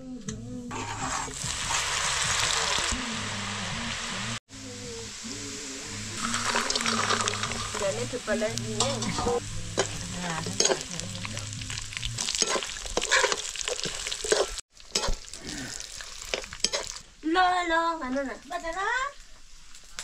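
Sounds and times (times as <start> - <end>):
food sizzling in a pan: 0.7 - 20.0
spatula scraping and knocking pan: 8.8 - 11.3, 12.2 - 15.2.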